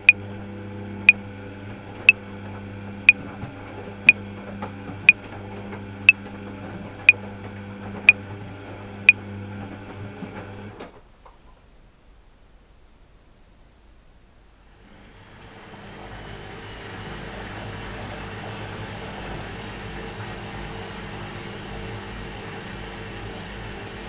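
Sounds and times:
washing machine motor hum: 15.4s - 24.0s.

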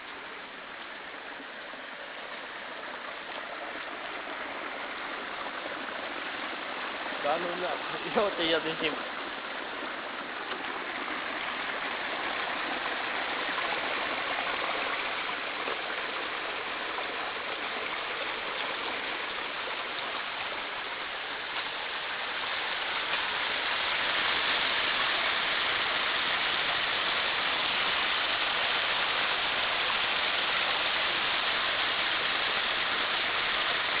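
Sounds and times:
rainwater rushing down gully: 0.0s - 34.0s.

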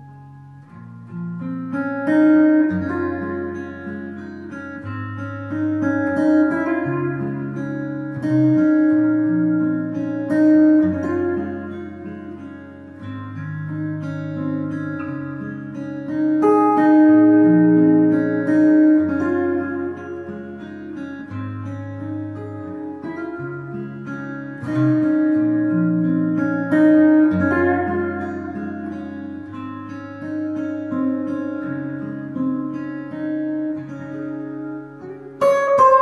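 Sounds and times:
fingerstyle acoustic guitar: 0.0s - 36.0s.

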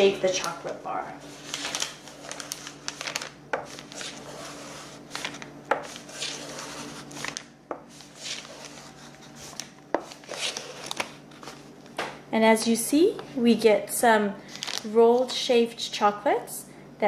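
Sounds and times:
knife scraping chocolate: 3.8s - 7.3s.

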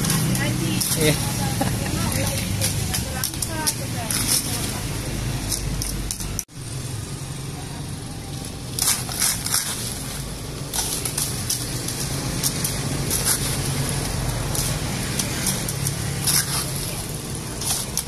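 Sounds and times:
traffic hum: 0.0s - 18.0s
sharp hissy scrapes: 8.8s - 18.0s.

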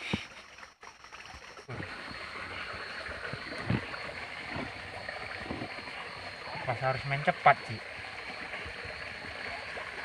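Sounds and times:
muffled underwater rush: 1.6s - 10.0s
dull knocks underwater: 3.3s - 5.8s.

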